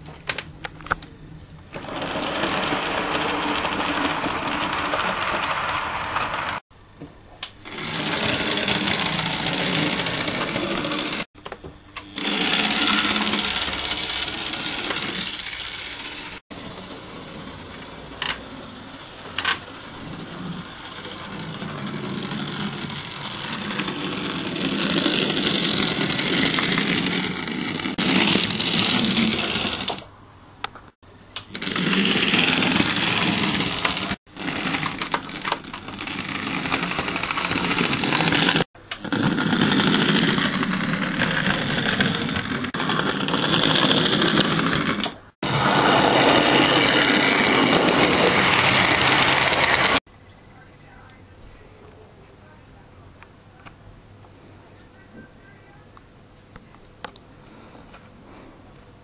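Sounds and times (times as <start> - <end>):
model train motor whirring: 1.8 - 6.6, 7.6 - 11.3, 12.0 - 30.1, 31.4 - 50.0.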